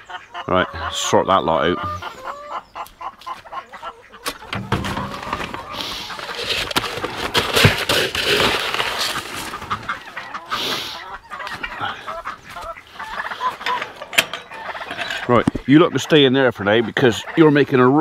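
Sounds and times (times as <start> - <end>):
hens clucking: 0.0 - 18.0
knocks and rustling: 4.3 - 10.0.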